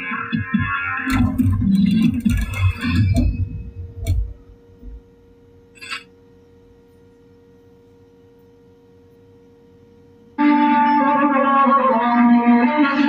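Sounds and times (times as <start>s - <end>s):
background music: 0.0s - 4.4s.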